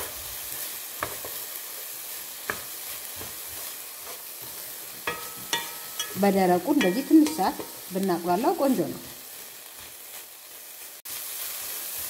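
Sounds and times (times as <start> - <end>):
onion sizzling: 0.0 - 12.0
spatula tapping on pan: 2.4 - 3.4, 4.9 - 7.9
spatula scraping pan: 2.4 - 8.0.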